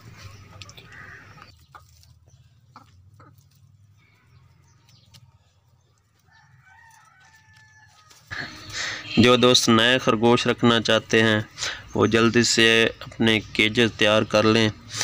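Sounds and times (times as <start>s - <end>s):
rabbits feeding on hay: 0.0s - 9.0s.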